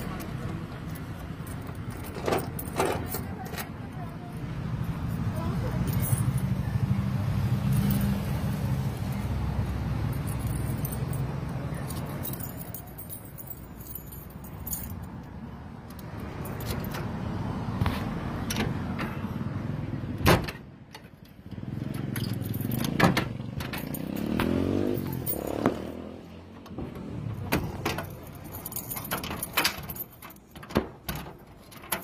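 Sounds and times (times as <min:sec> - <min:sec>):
keys jangling in a lock: 0:00.0 - 0:04.1, 0:05.8 - 0:06.6, 0:10.0 - 0:17.1, 0:21.0 - 0:26.2, 0:27.1 - 0:32.0.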